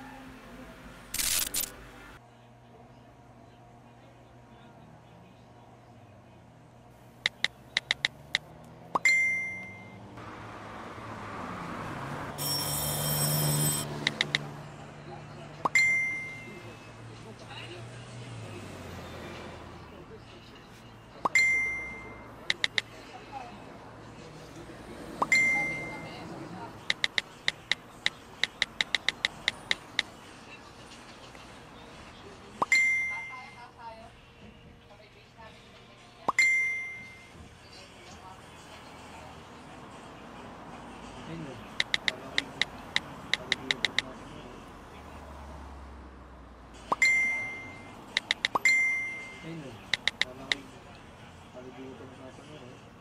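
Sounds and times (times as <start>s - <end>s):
street noise: 0.0s - 53.0s
smartphone keyboard taps: 7.3s - 8.4s, 14.0s - 14.4s, 22.5s - 22.9s, 26.9s - 30.1s, 41.8s - 44.0s, 48.2s - 48.7s, 49.9s - 50.6s
message sent whoosh and ding: 12.4s - 14.0s
buzzing electronic doorbell: 12.4s - 14.4s.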